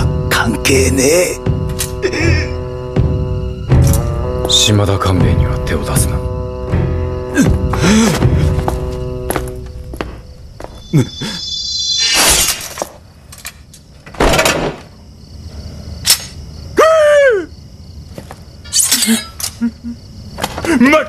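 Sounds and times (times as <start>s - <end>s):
ringing high tone: 10.6s - 12.8s
sword swishes and strikes: 11.6s - 13.0s.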